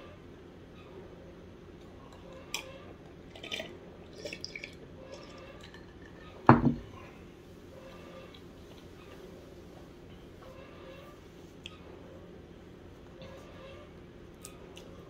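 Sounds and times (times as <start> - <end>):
loud knock: 6.5 - 6.8.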